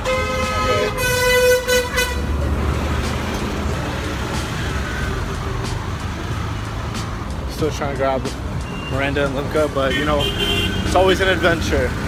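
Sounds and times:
vehicle horn blaring: 0:00.0 - 0:02.3, 0:09.9 - 0:11.0
traffic engine rumble: 0:00.0 - 0:12.0.

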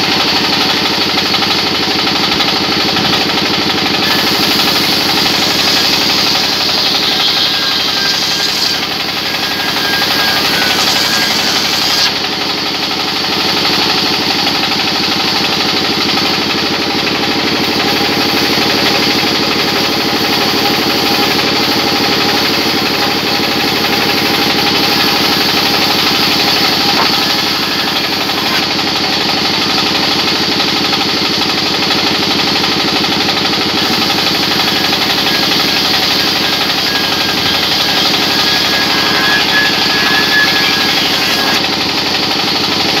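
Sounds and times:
circular saw bench droning: 0:00.0 - 0:42.8
thin whine: 0:03.8 - 0:12.2, 0:17.6 - 0:28.9, 0:33.8 - 0:41.6.

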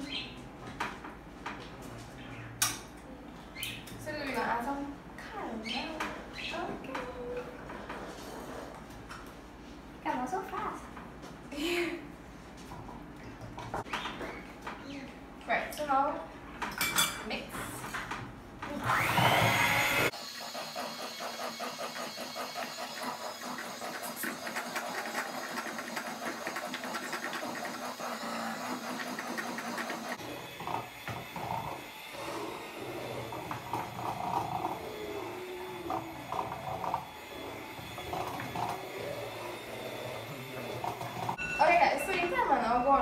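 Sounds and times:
hand mixer whirring in bowl: 0:18.7 - 0:41.4.

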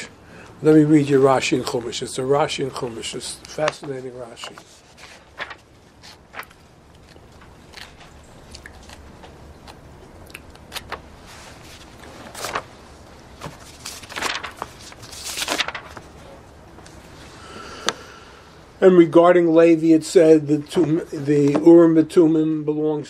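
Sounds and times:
book pages rustling: 0:02.8 - 0:09.8, 0:10.6 - 0:17.2.

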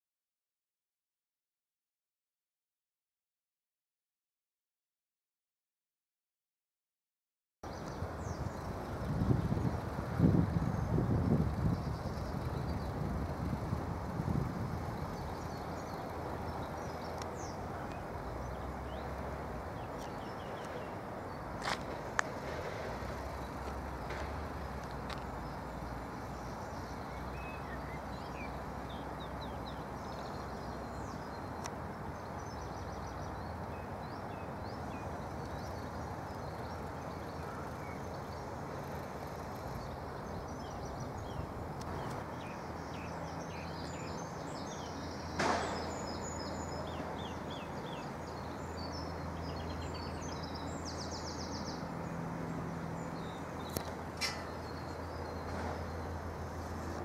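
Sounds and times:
birds chirping: 0:07.6 - 0:13.8, 0:14.7 - 0:57.0
sharp knock: 0:45.4 - 0:45.9.

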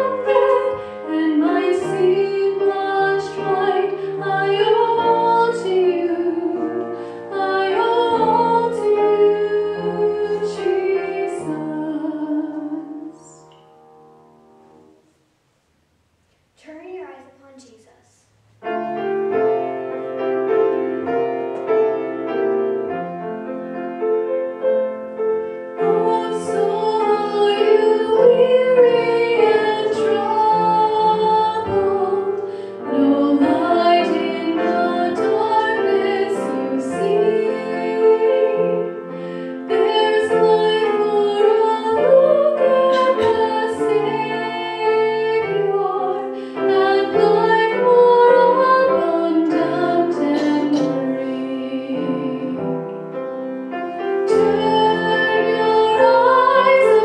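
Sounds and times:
woman singing: 0:00.0 - 0:13.5, 0:25.8 - 0:38.9, 0:39.7 - 0:52.7, 0:54.3 - 0:57.0
grand piano playing: 0:00.0 - 0:15.1, 0:18.4 - 0:57.0.

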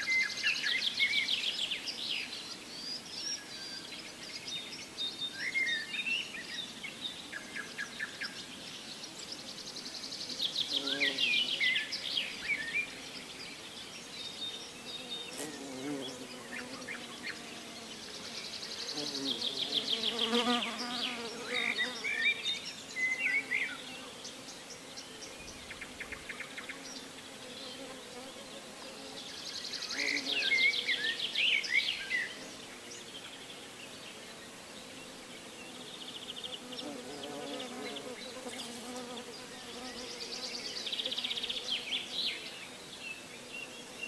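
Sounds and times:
flying insect buzzing: 0:10.2 - 0:12.1, 0:14.6 - 0:31.4, 0:32.1 - 0:44.0.

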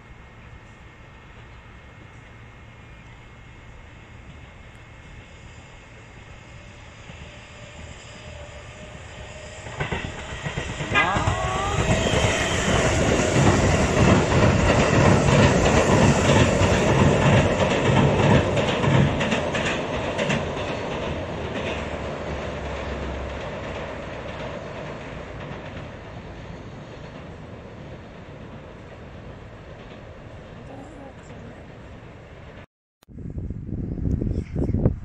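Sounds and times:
train wheels clattering on bridge: 0:09.2 - 0:30.5.

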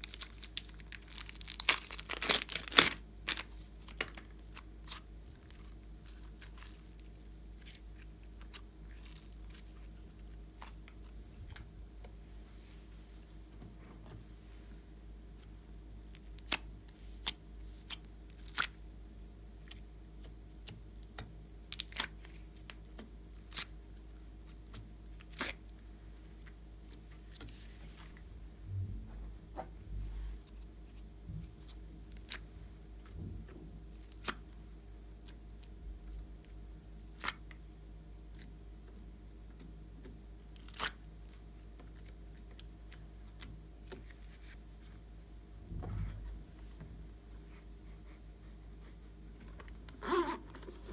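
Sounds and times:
faint steady hum: 0:00.0 - 0:50.9.

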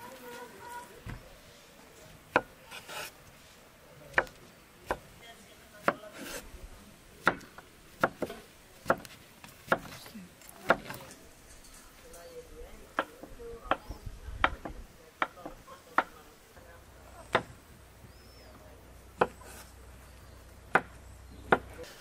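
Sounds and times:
knife slicing on wooden board: 0:02.4 - 0:03.2.

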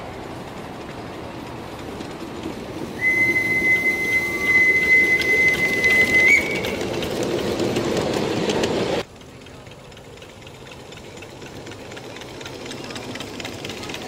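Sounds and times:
locomotive hissing and clicking: 0:00.0 - 0:14.0
steam whistle: 0:03.0 - 0:06.8.

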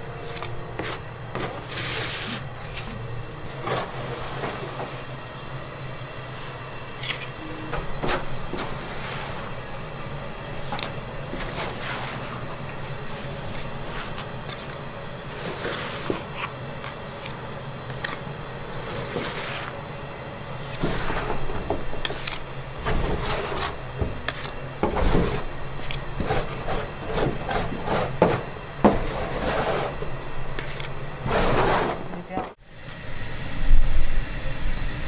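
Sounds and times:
metal scrapers scraping on metal: 0:03.5 - 0:05.0, 0:07.0 - 0:09.8, 0:10.5 - 0:17.4, 0:18.0 - 0:19.8, 0:20.6 - 0:32.3.

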